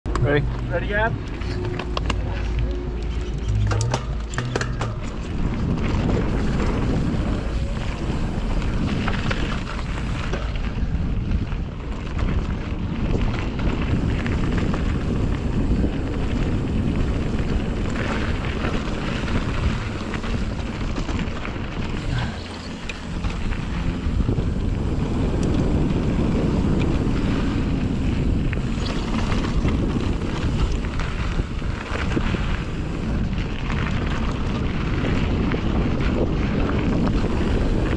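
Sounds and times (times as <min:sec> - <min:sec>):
bike rattling over bumps: 0:00.1 - 0:37.9
wind buffeting microphone: 0:00.1 - 0:37.9
tyre noise on dirt: 0:00.2 - 0:37.9.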